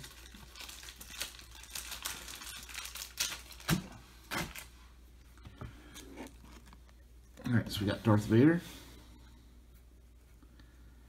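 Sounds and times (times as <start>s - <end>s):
plastic packaging crinkling: 0.0s - 4.8s.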